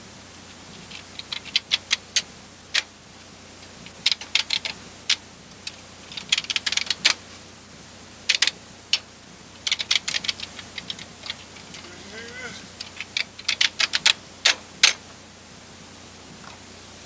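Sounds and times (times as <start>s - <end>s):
keyboard keys clacking: 9.6s - 15.0s.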